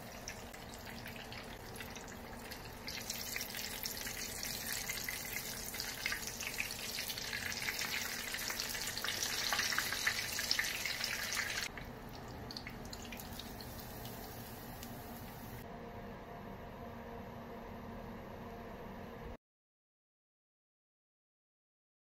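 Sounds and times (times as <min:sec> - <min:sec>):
omelette sizzling in oil: 0:00.0 - 0:11.8, 0:12.4 - 0:15.6.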